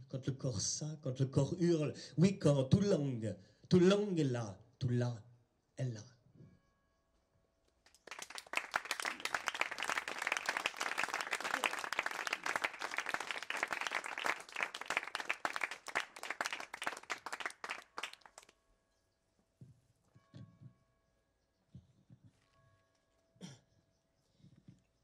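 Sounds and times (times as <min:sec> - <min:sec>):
small audience clapping: 0:07.9 - 0:18.5.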